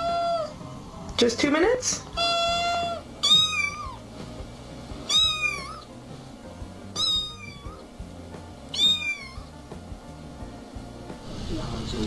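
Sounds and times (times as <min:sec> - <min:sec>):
kitten meowing: 0:00.0 - 0:00.6, 0:02.1 - 0:04.0, 0:05.0 - 0:05.9, 0:06.9 - 0:07.9, 0:08.7 - 0:09.6.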